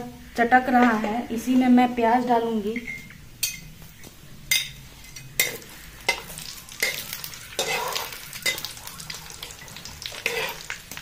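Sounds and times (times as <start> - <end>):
metal spatula scraping pan: 4.5 - 8.7, 10.0 - 10.8
spices sizzling in hot oil: 4.5 - 11.0.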